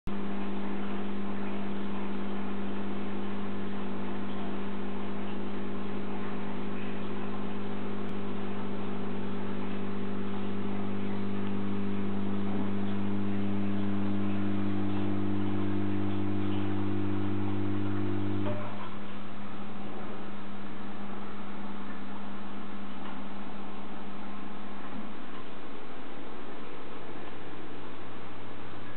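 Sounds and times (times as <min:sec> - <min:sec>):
higher hum tone: 0:00.1 - 0:23.2
aquarium pumps humming: 0:00.1 - 0:28.9.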